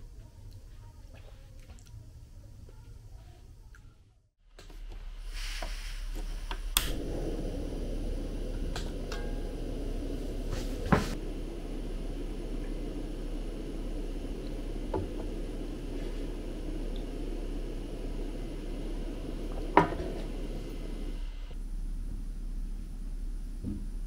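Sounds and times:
gas burner hissing: 4.6 - 24.0.

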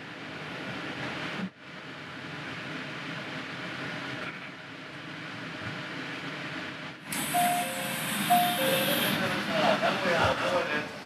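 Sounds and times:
train rolling: 5.8 - 11.0
train air hiss: 7.1 - 10.7
two-note chime: 7.4 - 9.2.

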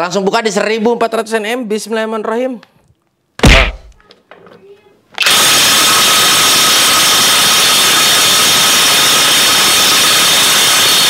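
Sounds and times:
impact wrench hammering: 3.4 - 4.0.

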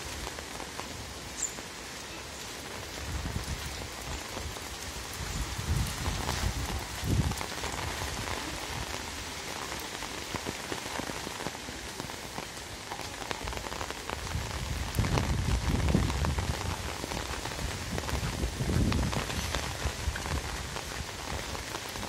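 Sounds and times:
steady rain hiss: 0.0 - 22.0
wind buffeting microphone: 3.0 - 9.4, 13.4 - 22.0.

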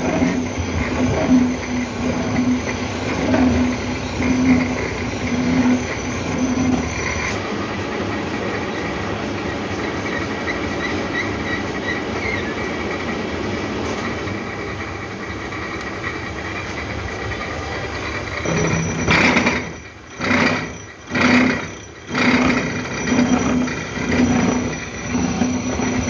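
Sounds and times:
milling machine cutting: 0.0 - 7.6, 18.0 - 26.0.

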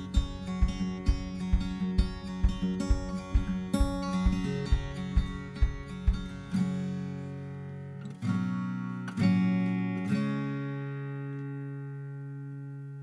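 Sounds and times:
soft low beats: 0.0 - 6.7
acoustic guitar strumming: 0.0 - 13.0.

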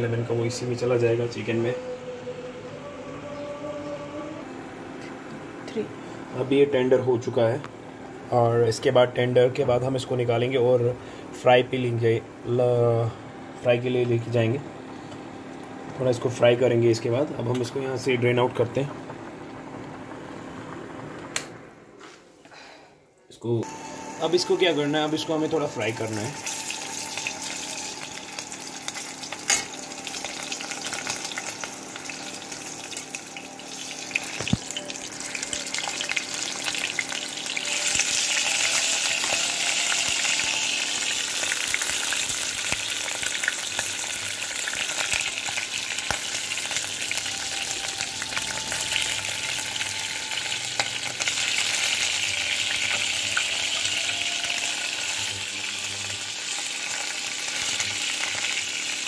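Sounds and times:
chicken sizzling in oil: 23.7 - 59.0.

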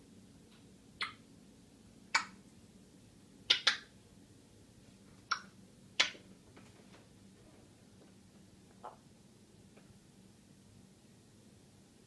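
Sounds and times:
parrot clicking: 3.5 - 3.9.

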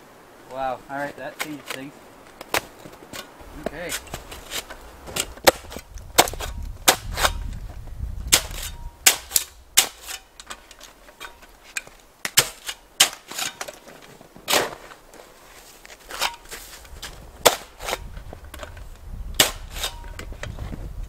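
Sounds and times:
snow shovel crunching hard snow: 2.5 - 7.5, 8.2 - 18.4, 19.4 - 20.8.

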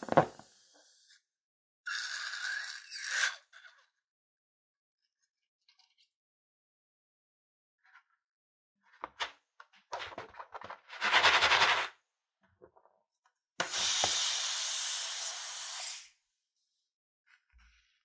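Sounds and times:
air hissing out of balloon: 13.6 - 16.2.

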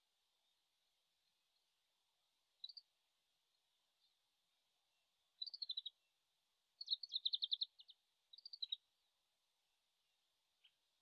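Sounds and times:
bird twittering song: 2.6 - 2.8, 5.4 - 6.1, 6.8 - 8.9.

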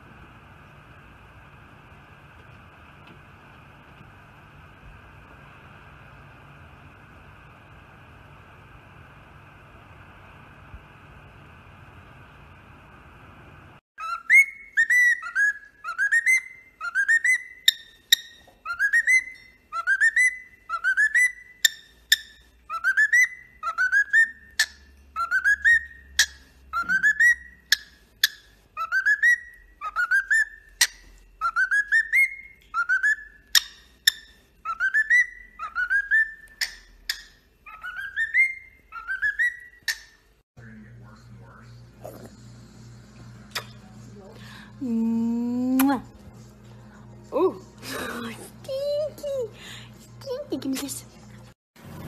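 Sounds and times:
cockatiel whistling: 14.0 - 40.2.

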